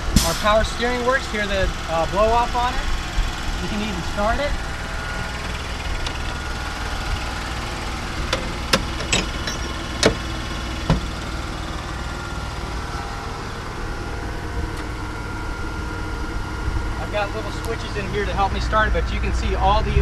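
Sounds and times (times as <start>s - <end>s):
electric motor and compressor running: 0.0s - 20.0s
sharp clicks and knocks: 8.2s - 11.1s.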